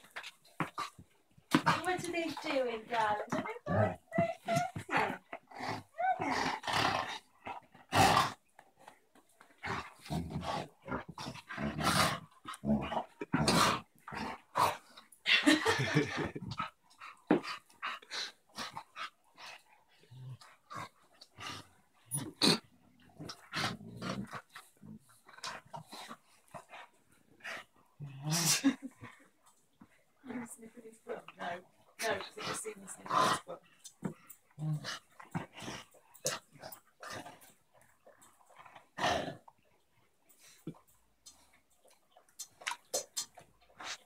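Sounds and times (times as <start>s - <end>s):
dogs play growling: 0.0s - 44.0s.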